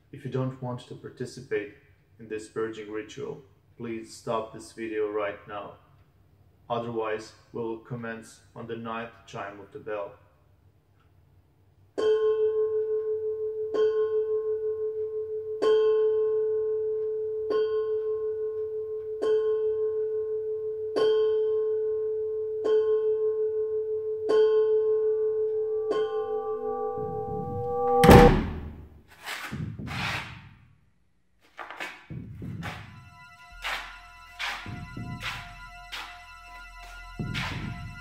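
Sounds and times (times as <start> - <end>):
bell chiming: 25.6 - 28.1, 32.9 - 38.0
loud rising whoosh: 25.9 - 28.9.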